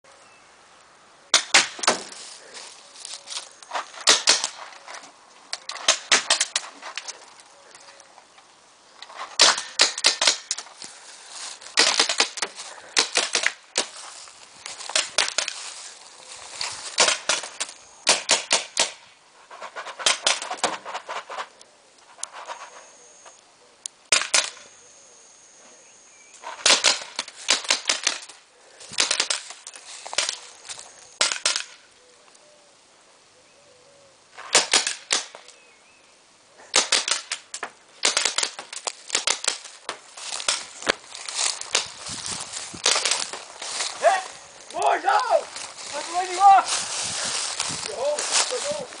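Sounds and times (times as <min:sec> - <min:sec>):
paintball markers firing: 0:04.0 - 0:04.6, 0:09.4 - 0:10.6, 0:17.0 - 0:19.0, 0:26.6 - 0:28.4, 0:36.7 - 0:40.6.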